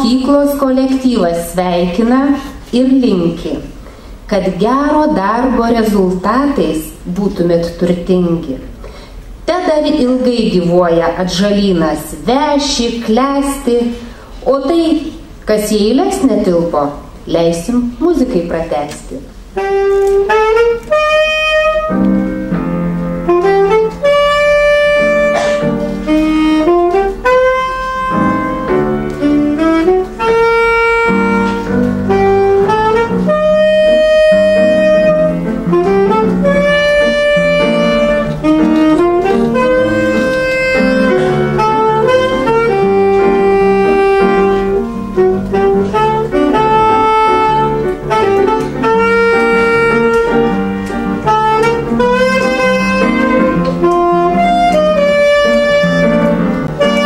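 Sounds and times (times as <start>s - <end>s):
piano accompaniment: 0.0s - 57.0s
alto saxophone melody: 19.3s - 57.0s.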